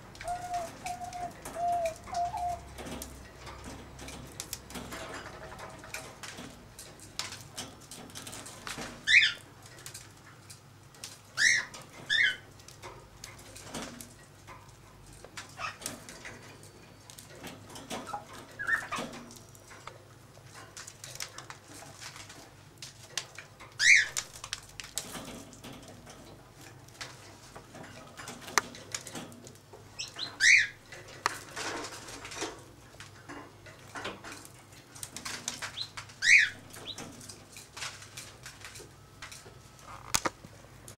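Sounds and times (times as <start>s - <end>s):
parrot chirping: 0.2s - 2.6s, 18.1s - 19.0s.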